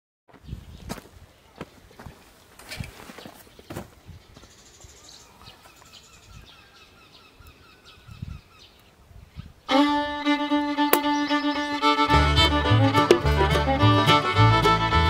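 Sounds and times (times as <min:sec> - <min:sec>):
faint bird chirps: 0:03.2 - 0:09.7, 0:11.0 - 0:11.8
fiddle-led background music: 0:09.7 - 0:15.0.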